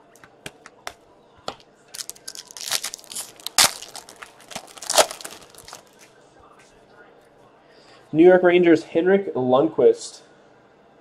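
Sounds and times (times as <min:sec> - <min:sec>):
foil wrapper crinkling and tearing: 0:02.0 - 0:06.0.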